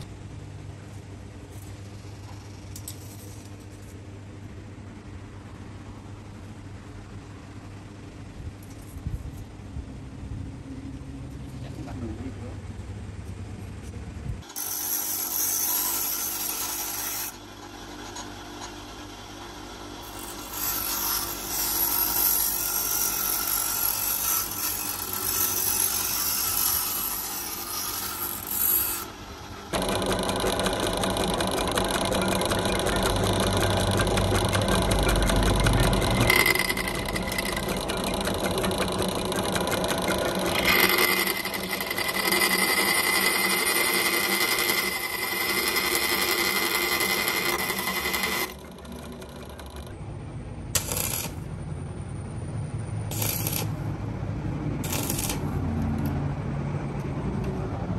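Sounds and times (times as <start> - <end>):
bench grinder grinding steel: 14.4 - 50.0, 50.8 - 51.4, 53.1 - 53.8, 54.8 - 55.6
drill press boring steel: 14.4 - 50.0, 50.8 - 51.4, 53.1 - 53.8, 54.8 - 55.5.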